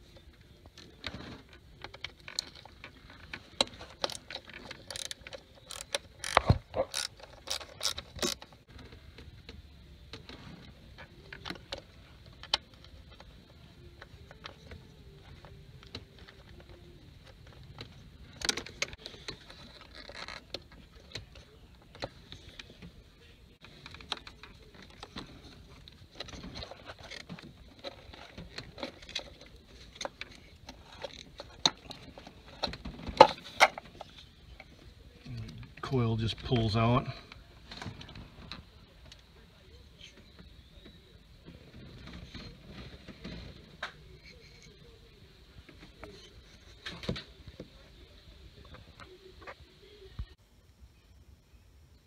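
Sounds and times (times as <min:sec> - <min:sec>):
ratchet clicking: 0:04.8 - 0:08.4.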